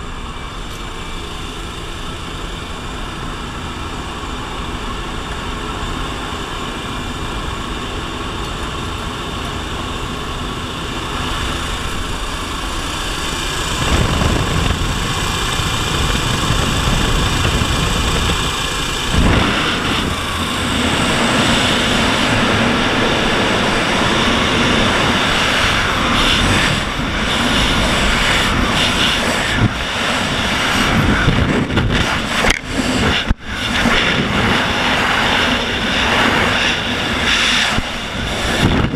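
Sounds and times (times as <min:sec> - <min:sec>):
propeller aircraft engines droning: 0:00.0 - 0:38.9
rush of wind: 0:00.0 - 0:38.9.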